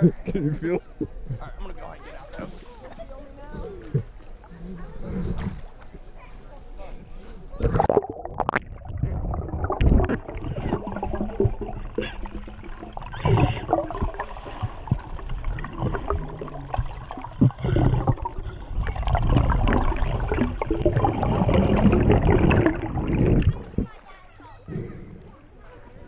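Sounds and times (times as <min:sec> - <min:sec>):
water sloshing and splashing: 0:07.5 - 0:24.3.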